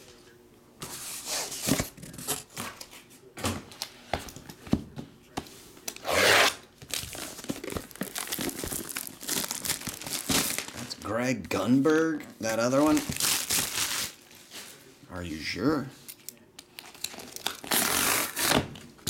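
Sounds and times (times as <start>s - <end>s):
plastic ripping: 6.0s - 11.0s, 12.8s - 14.2s, 16.7s - 18.8s
plastic wrapping crinkling: 6.8s - 11.1s, 12.7s - 14.4s.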